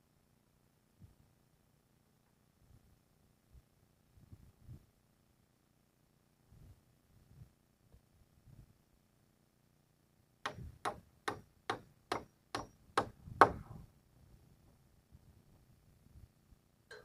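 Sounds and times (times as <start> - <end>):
hammer striking nail on metal roofing: 10.5 - 13.8.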